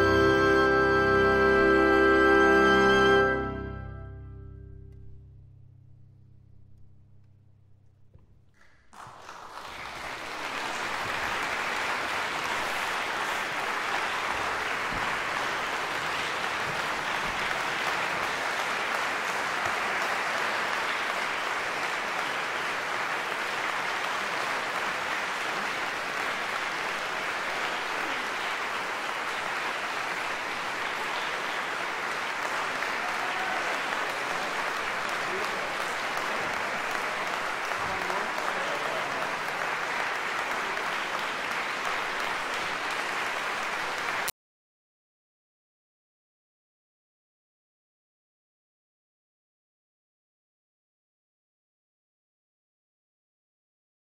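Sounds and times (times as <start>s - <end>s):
audience applause: 8.6s - 44.3s.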